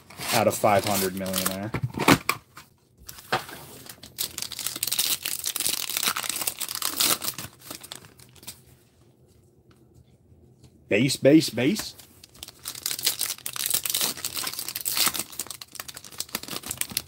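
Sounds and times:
wrapper tearing and crinkling: 0:00.2 - 0:02.1, 0:03.2 - 0:08.6, 0:12.2 - 0:17.0.

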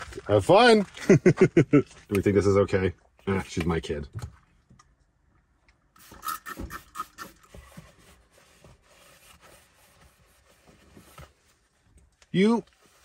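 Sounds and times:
bowl scraping and rubbing: 0:06.1 - 0:10.8.

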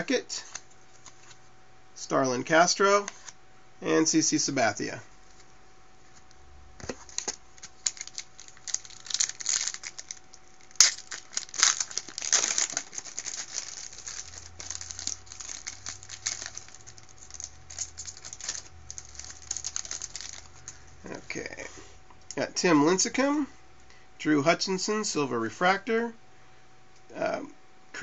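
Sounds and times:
foil wrapper crinkling and tearing: 0:07.0 - 0:20.9.

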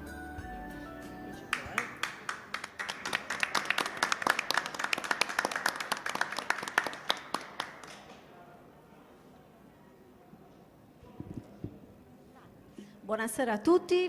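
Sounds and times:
small group applauding: 0:01.4 - 0:08.4.

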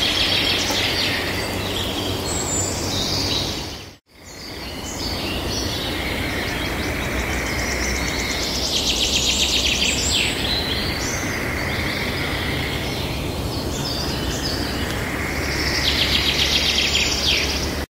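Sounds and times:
birds singing: 0:00.0 - 0:17.9
outdoor ambience hiss: 0:00.0 - 0:17.9.

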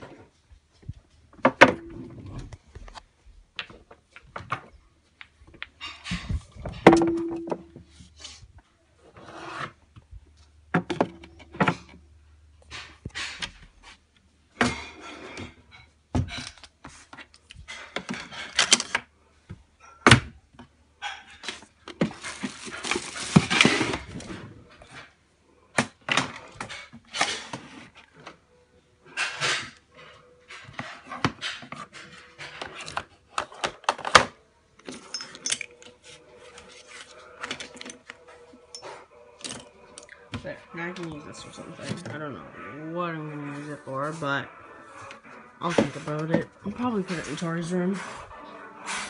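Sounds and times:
containers knocking on wooden shelves: 0:06.6 - 0:07.9.

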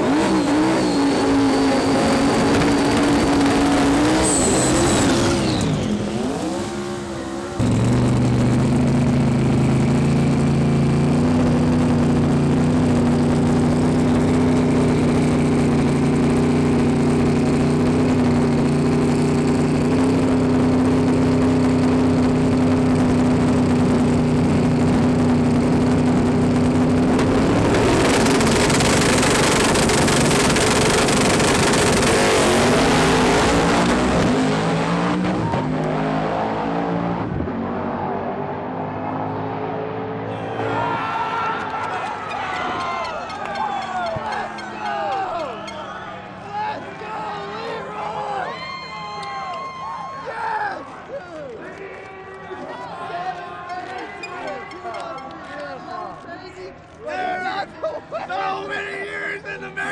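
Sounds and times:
race car engine running steadily: 0:00.0 - 0:40.8
race car engine at full throttle: 0:00.0 - 0:50.1.

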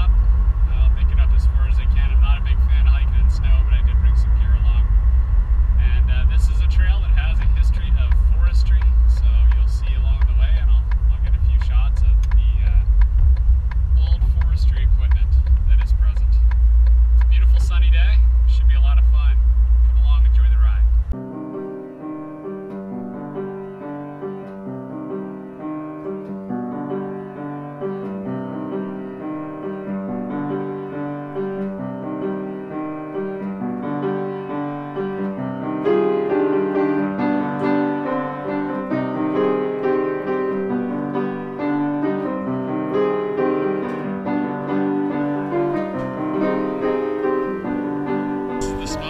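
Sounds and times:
instrumental piano music: 0:21.1 - 0:49.0.

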